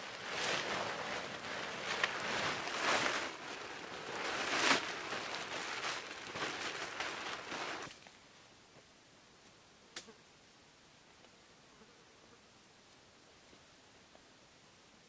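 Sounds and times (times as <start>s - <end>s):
plastic tarp crinkling: 0.0s - 8.1s.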